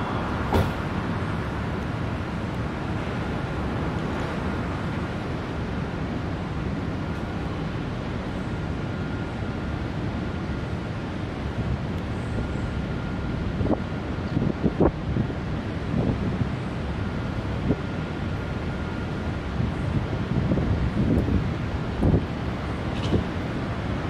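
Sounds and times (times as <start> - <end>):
distant vehicles rumbling: 0.0 - 24.0
wind on microphone: 13.4 - 16.6, 19.6 - 24.0.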